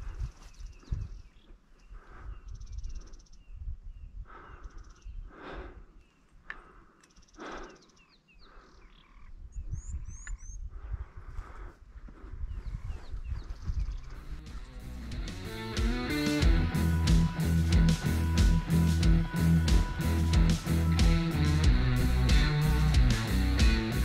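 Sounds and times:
small birds chirping: 0.0s - 24.0s
breath-like noise rushes: 1.9s - 3.3s, 4.2s - 9.0s, 10.6s - 12.7s
low rumble on microphone: 9.3s - 15.7s.

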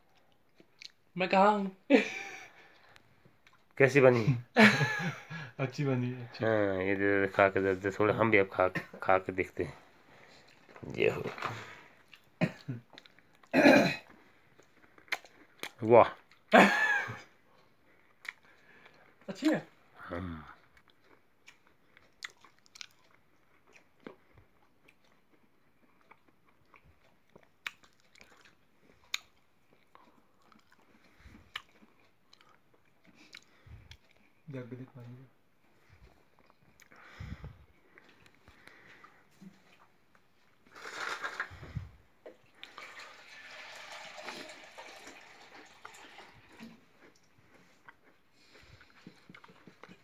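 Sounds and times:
chewing and mouth clicks: 0.0s - 1.1s, 2.6s - 3.8s, 10.3s - 10.8s, 12.0s - 16.5s, 17.5s - 19.2s, 20.5s - 34.4s, 35.8s - 37.2s, 37.8s - 41.5s, 46.6s - 50.0s
water pouring into plastic mug: 42.6s - 46.8s.

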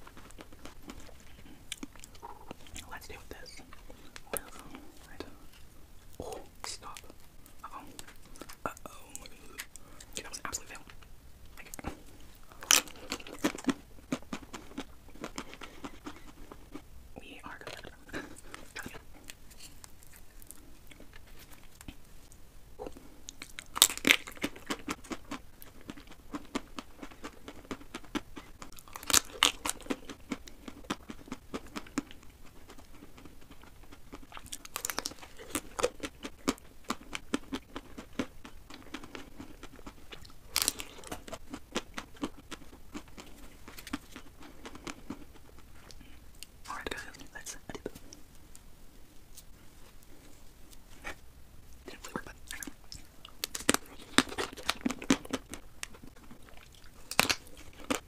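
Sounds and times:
crunching and wet chewing: 0.0s - 58.0s
crisp bites cracking chocolate: 23.3s - 45.4s, 51.9s - 58.0s.

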